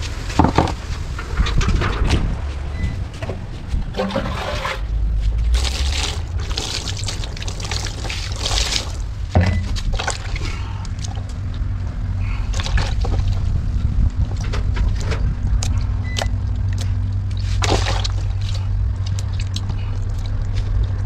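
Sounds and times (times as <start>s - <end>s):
steady low rumble: 0.0s - 21.0s
water pouring and splashing: 3.9s - 11.6s, 12.2s - 21.0s.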